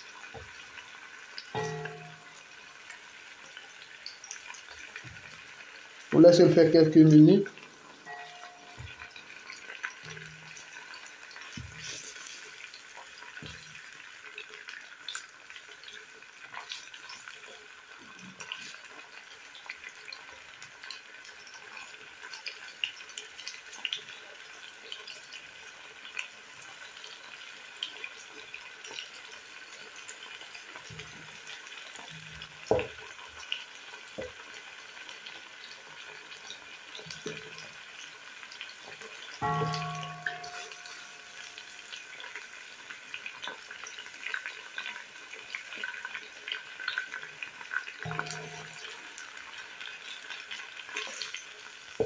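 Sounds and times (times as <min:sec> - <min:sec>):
chicken sizzling and popping in oil: 0:00.0 - 0:52.0
wooden spoon stirring and knocking pot: 0:32.2 - 0:33.3, 0:39.4 - 0:41.5, 0:48.1 - 0:49.1.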